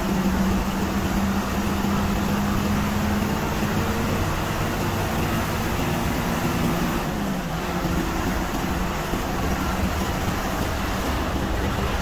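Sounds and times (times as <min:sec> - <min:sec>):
bus engine hum: 0:00.0 - 0:12.0.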